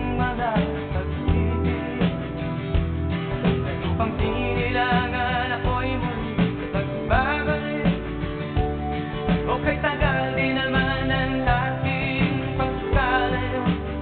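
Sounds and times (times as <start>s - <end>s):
instrumental guitar music: 0.0s - 14.0s
sliding lead melody: 0.0s - 14.0s.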